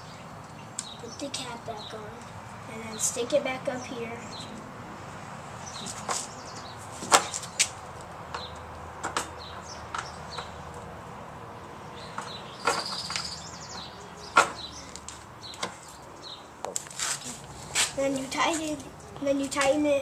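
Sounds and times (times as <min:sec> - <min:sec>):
faint birds chirping: 0:00.0 - 0:04.6, 0:11.5 - 0:16.6.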